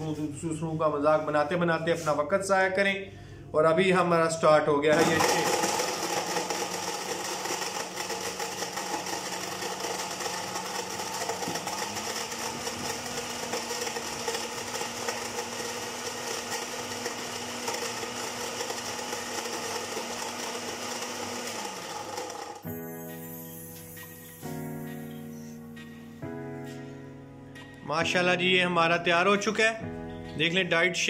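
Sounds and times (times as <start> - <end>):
blender running: 4.9 - 22.8.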